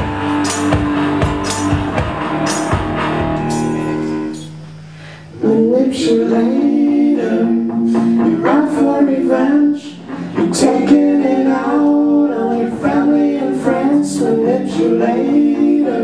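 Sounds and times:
live rock band playing: 0:00.0 - 0:04.4
electric guitar chords: 0:00.0 - 0:16.0.

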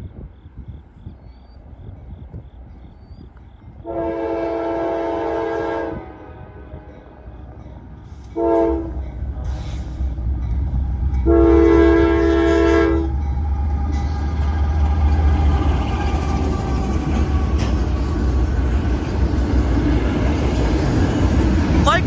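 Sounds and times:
locomotive rumble: 0:00.0 - 0:22.0
train horn blasts: 0:03.8 - 0:07.6, 0:08.2 - 0:10.2, 0:11.1 - 0:13.3
freight cars rolling past: 0:06.2 - 0:22.0.

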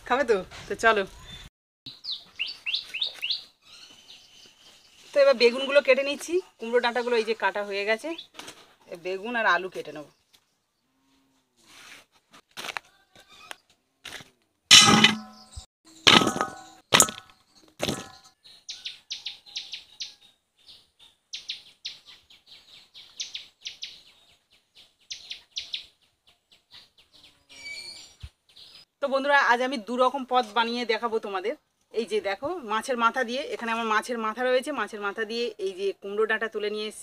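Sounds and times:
small bird chirping: 0:01.2 - 0:05.1, 0:16.6 - 0:28.9
loud metallic clangs: 0:14.7 - 0:18.2
sharp knocks: 0:14.7 - 0:18.2.

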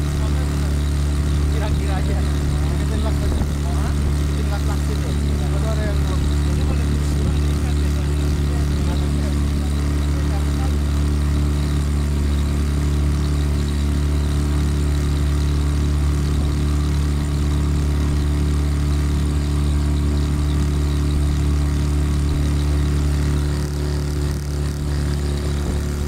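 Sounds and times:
outboard motor running: 0:00.0 - 0:26.0
wind: 0:00.0 - 0:26.0
rush of boat wake: 0:22.1 - 0:26.0.

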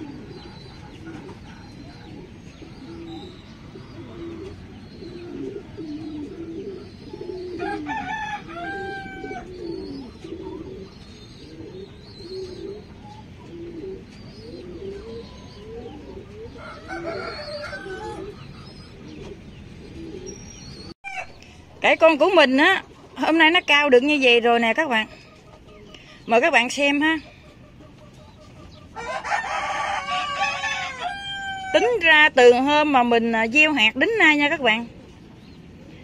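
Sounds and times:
rooster crowing: 0:07.6 - 0:09.5, 0:16.6 - 0:18.4, 0:28.9 - 0:32.0.

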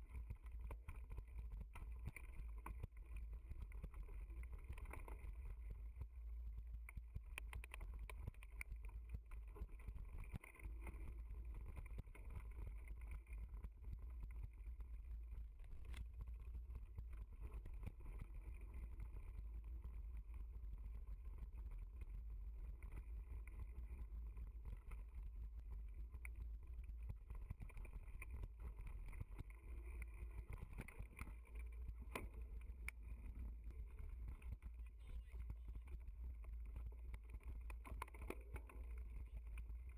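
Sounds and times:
wind rumble on microphone: 0:00.0 - 0:39.9
bike clicks and rattles: 0:22.7 - 0:39.9.

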